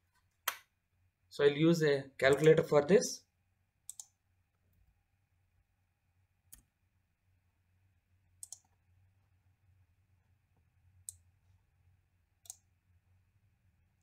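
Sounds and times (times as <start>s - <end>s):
keyboard and mouse clicks: 2.2s - 2.7s, 3.9s - 4.2s, 8.4s - 8.8s.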